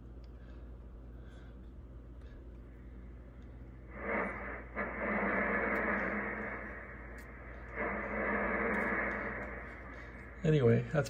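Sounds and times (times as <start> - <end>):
faint steady hum: 0.0 - 11.0
radio static hiss: 3.9 - 11.0.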